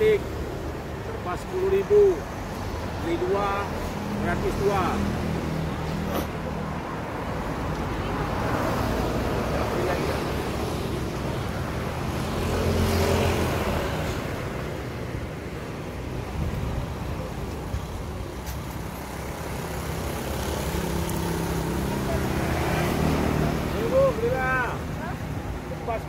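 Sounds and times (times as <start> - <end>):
road traffic passing: 0.0 - 26.0
vehicle passing loudly: 19.1 - 25.0.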